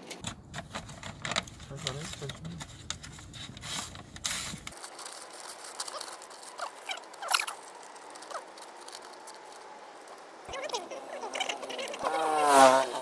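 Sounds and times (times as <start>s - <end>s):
paper crinkling: 0.0s - 11.9s
scissors snipping paper: 0.8s - 10.2s.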